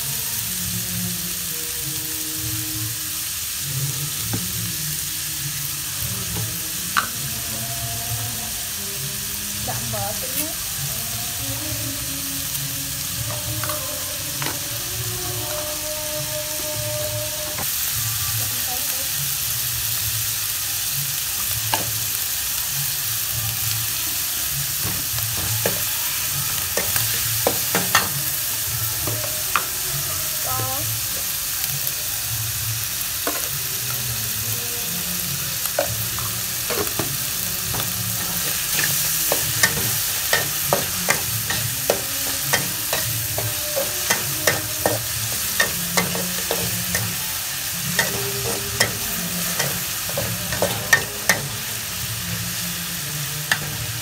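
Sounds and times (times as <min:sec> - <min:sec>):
food sizzling in a wok: 0:00.0 - 0:54.0
metal spatula scraping wok: 0:35.8 - 0:51.6.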